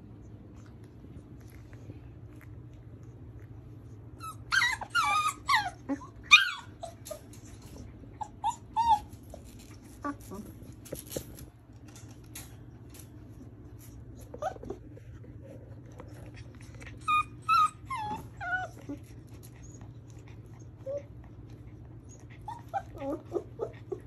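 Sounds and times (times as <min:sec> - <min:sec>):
puppy whimpering: 0:04.1 - 0:11.1, 0:14.0 - 0:24.0.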